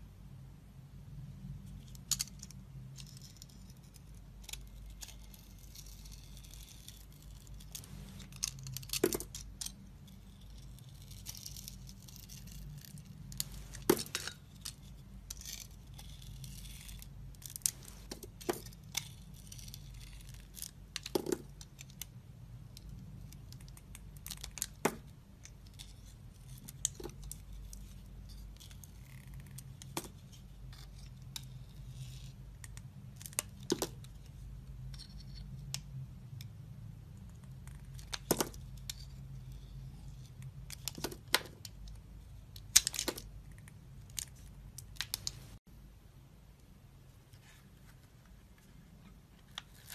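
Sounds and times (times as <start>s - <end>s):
knife scraping soap: 3.1s - 7.7s, 15.3s - 17.5s, 18.9s - 20.7s.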